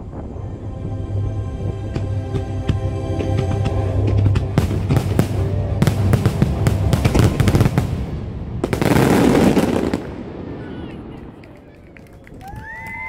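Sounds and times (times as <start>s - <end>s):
fireworks bangs: 4.4s - 13.0s
fireworks crackling: 4.6s - 13.0s.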